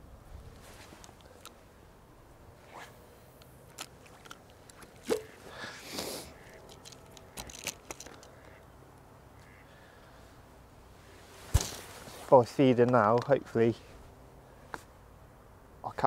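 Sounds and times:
light clicks and rustles: 0:00.5 - 0:01.6, 0:03.4 - 0:05.4, 0:06.4 - 0:08.6, 0:11.4 - 0:14.0.

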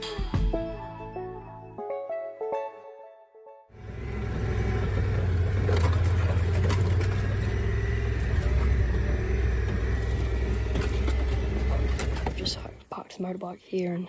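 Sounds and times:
knocks and rattles from bumps: 0:03.8 - 0:12.8
vehicle engine rumble: 0:03.8 - 0:12.9.

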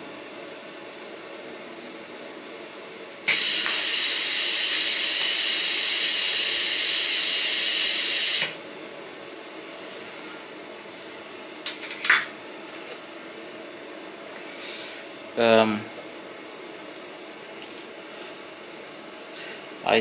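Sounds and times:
welding arc hissing: 0:03.3 - 0:08.6.

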